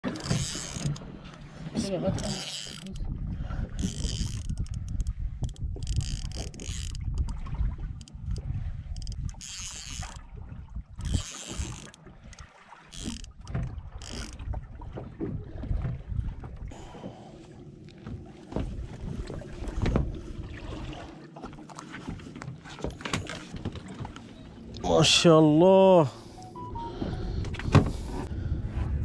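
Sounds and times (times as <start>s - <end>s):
fishing reel gears whirring: 0.0s - 1.0s, 2.1s - 3.0s, 3.8s - 7.4s, 8.9s - 10.2s, 11.0s - 14.4s
low rumble: 26.6s - 29.0s.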